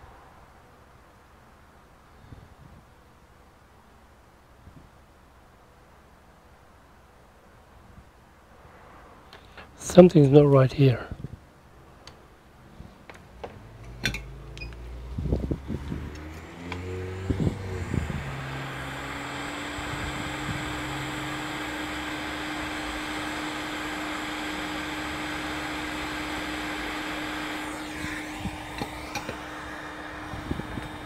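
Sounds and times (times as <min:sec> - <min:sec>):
blower fan hum: 0:09.4 - 0:31.0
hot air rushing: 0:12.6 - 0:31.0.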